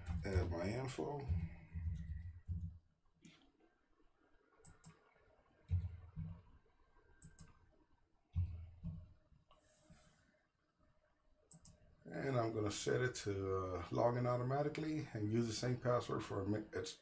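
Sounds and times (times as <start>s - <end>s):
dull low thumps: 0.0s - 2.9s, 5.7s - 6.5s
mouse clicks: 7.2s - 7.6s.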